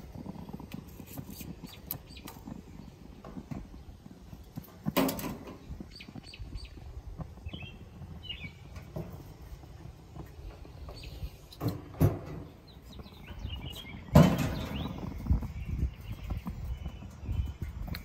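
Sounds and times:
bird chirps: 1.6 - 3.0, 5.8 - 8.8, 10.8 - 11.4, 12.4 - 18.0.

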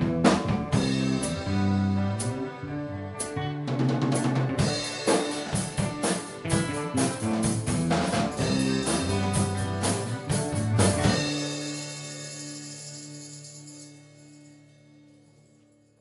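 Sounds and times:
live rock band playing: 0.0 - 15.1
hard drum hits: 4.0 - 13.0.

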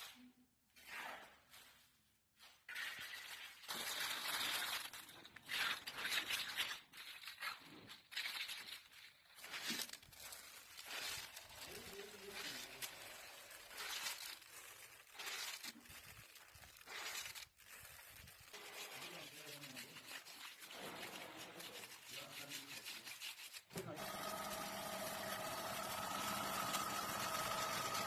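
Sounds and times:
chips rustling and scraping by hand: 2.4 - 28.0
floor grinding machine whining hum: 23.8 - 28.0.

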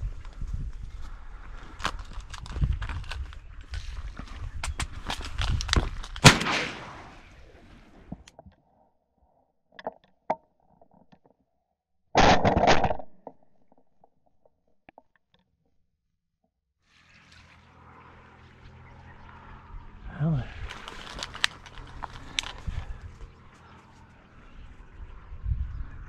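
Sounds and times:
shotgun shot: 6.2 - 7.4.

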